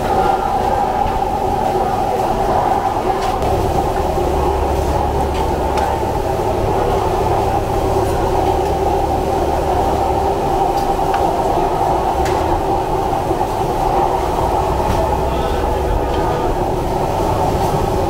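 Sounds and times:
gas burners rushing: 0.0s - 18.0s.

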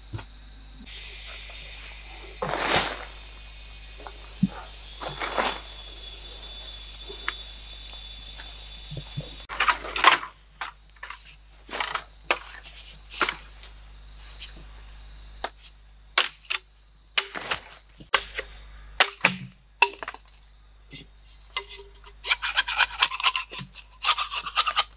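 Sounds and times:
machete chopping bamboo: 16.2s - 16.6s, 17.2s - 20.3s.

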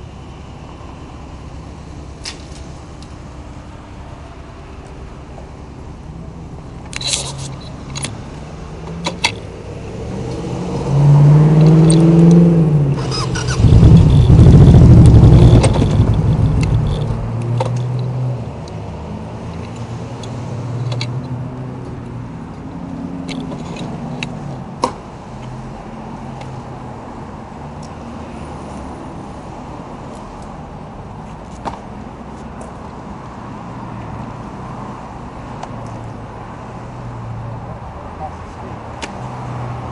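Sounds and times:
motorcycle engine running: 13.0s - 17.4s.

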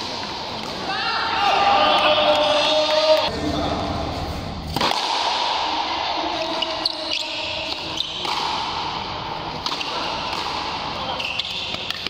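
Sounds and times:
rubber ball struck by rackets: 4.7s - 5.5s.

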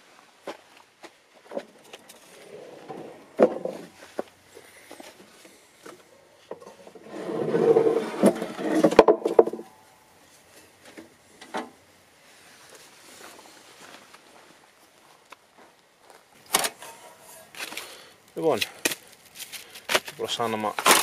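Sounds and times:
scraping and rustling in drawer: 2.1s - 4.0s, 6.6s - 9.1s.

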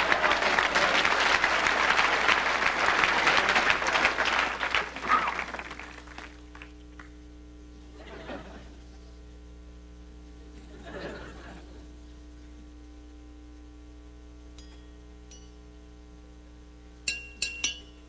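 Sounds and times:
audience laughing: 0.0s - 6.0s, 8.0s - 8.8s, 10.6s - 11.9s
audience clapping: 0.0s - 7.2s
faint steady hum: 0.0s - 18.0s.

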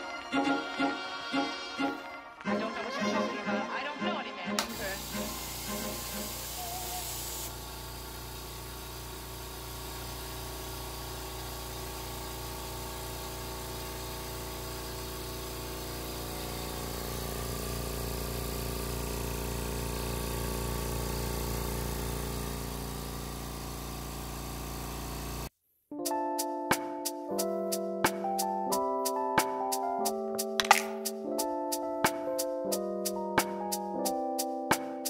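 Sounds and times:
air compressor humming: 4.6s - 25.5s.

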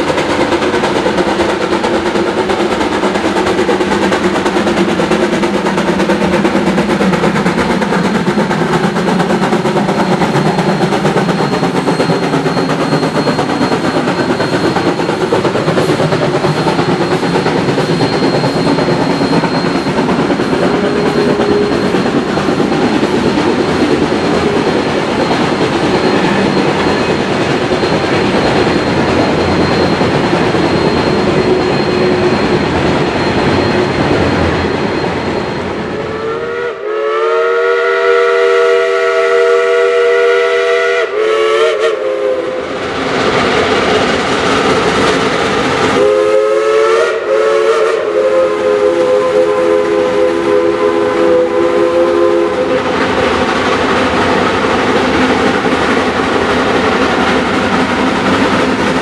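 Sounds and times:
train wheels rumbling on rails: 0.0s - 59.0s
steam locomotive whistle: 7.4s - 43.0s, 45.6s - 55.7s.

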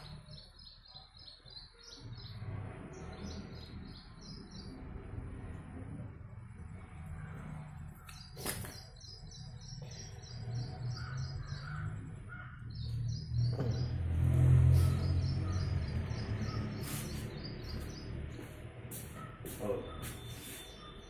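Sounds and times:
bird chirping: 0.0s - 5.0s, 7.1s - 21.0s
low rumble: 2.2s - 8.2s.

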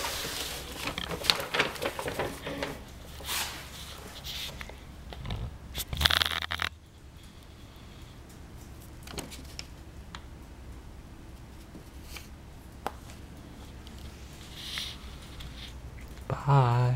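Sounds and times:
paper bag crinkling: 0.0s - 4.6s
low steady hum: 0.0s - 16.9s.

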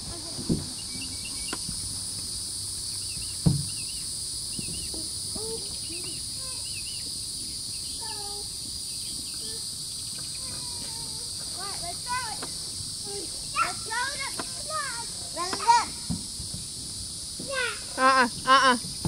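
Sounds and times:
insect chorus buzz: 0.0s - 19.0s
short chirping calls: 2.9s - 11.1s
sharp thump: 3.4s - 3.9s.

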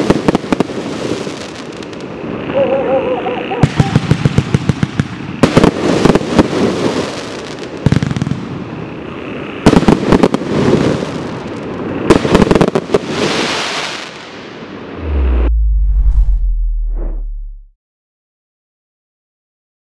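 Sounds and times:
firework crackling and fizzing: 0.0s - 2.5s, 3.6s - 14.7s
firework rapid bangs: 3.6s - 7.2s, 12.0s - 13.8s.

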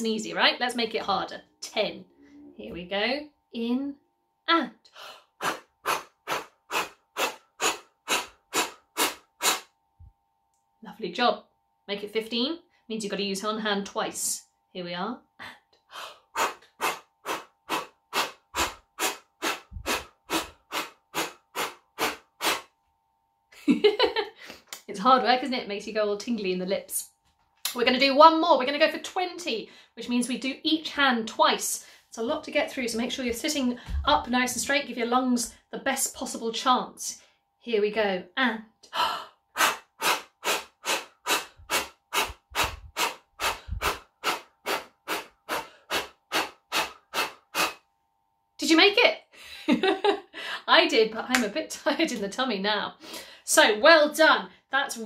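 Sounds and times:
woman blowing sharp puffs of air: 5.0s - 9.7s, 16.0s - 22.7s, 39.6s - 47.8s.

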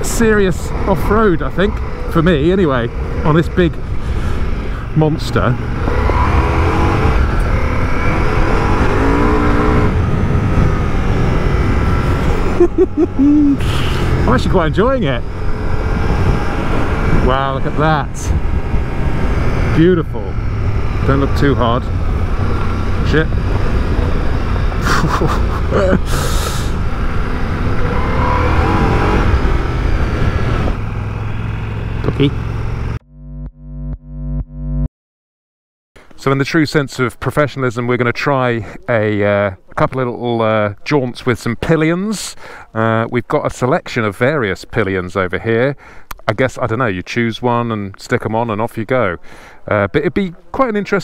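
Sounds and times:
motorcycle engine revving: 0.0s - 34.9s
noisy rumble: 0.0s - 34.9s.

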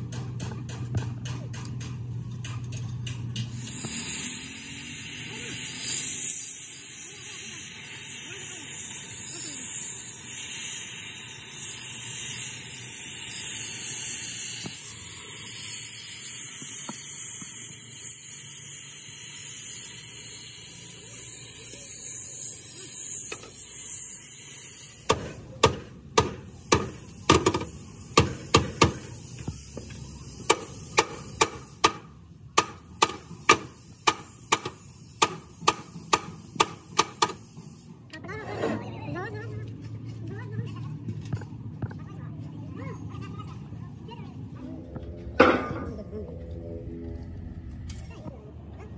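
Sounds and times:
cutting torch hissing: 3.4s - 38.1s.

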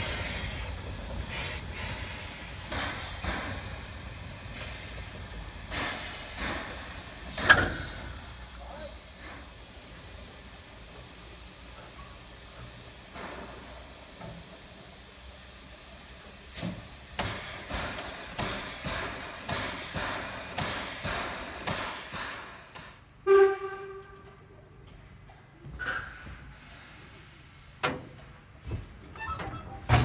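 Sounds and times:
steam locomotive exhaust chuffs: 0.0s - 23.5s
steam locomotive hissing: 0.0s - 23.5s.

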